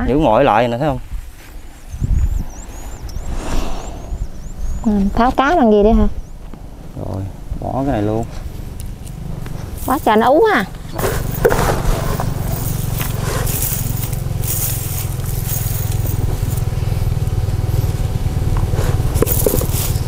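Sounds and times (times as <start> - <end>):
steady low rumble: 1.9 - 20.0
fishing net scraping and rustling: 10.9 - 16.7, 18.8 - 20.0.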